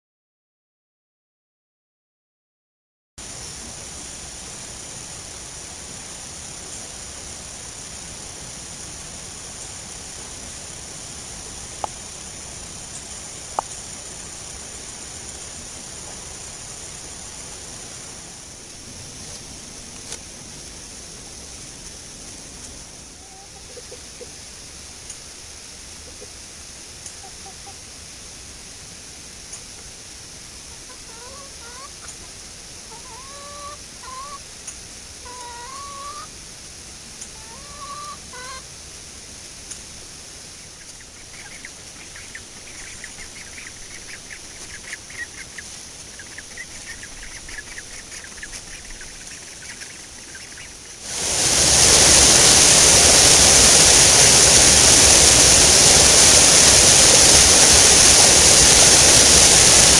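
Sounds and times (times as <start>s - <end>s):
water rushing over rocks: 3.2s - 22.9s, 39.8s - 59.9s
chickens clucking: 22.6s - 24.4s, 26.0s - 26.4s, 27.0s - 27.8s, 30.7s - 34.4s, 35.2s - 36.3s, 37.2s - 38.7s, 40.8s - 50.9s
chicken rising calls: 23.1s - 24.4s, 30.7s - 32.2s, 32.9s - 34.4s, 35.2s - 36.3s, 37.3s - 38.7s, 40.8s - 59.9s.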